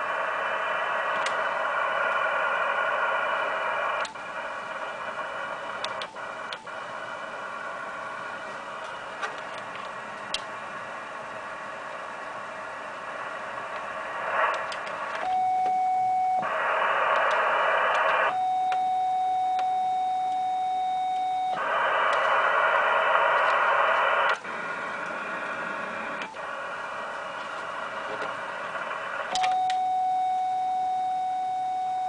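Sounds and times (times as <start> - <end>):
radio receiver hiss: 0.0 - 32.0
steady beep-like tone: 14.6 - 23.8, 27.8 - 32.0.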